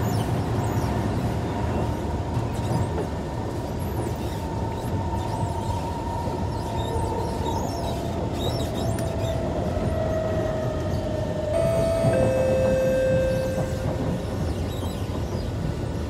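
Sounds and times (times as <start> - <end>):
train wheels rumbling: 0.0 - 16.0
high whine: 11.6 - 14.2.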